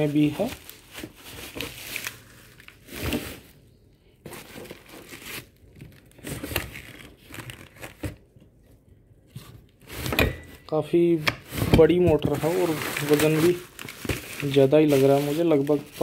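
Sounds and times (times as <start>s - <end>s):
bubble wrap and plastic crinkling: 0.0s - 16.0s
cardboard box rustling: 11.8s - 16.0s.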